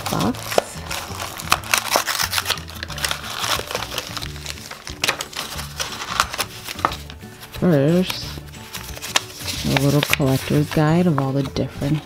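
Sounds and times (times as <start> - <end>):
cardboard box crinkling and clicking: 0.0 - 7.2
background music with bass line: 0.0 - 11.2.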